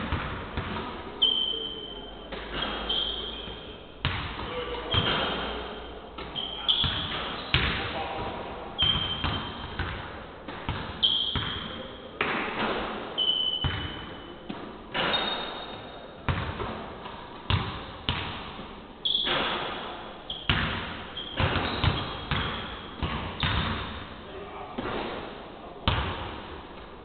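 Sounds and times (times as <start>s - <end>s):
basketballs bouncing on hardwood: 0.0s - 0.9s, 4.0s - 5.4s, 6.2s - 7.8s, 8.8s - 11.6s, 16.3s - 16.8s, 17.5s - 18.5s, 20.5s - 24.0s, 25.9s - 26.4s
shoes squeaking on floor: 1.2s - 3.9s, 4.5s - 7.6s, 8.8s - 9.8s, 11.0s - 11.8s, 13.2s - 14.3s, 14.9s - 16.2s, 19.0s - 23.9s.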